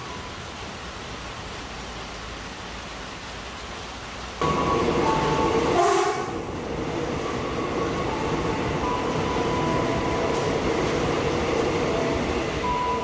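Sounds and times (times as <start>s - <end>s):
train wheels rumbling on rails: 4.4s - 13.0s.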